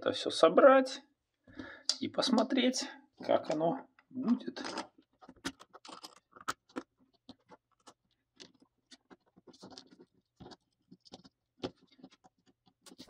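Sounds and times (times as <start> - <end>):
small metal parts clicking and scraping: 4.5 - 13.0.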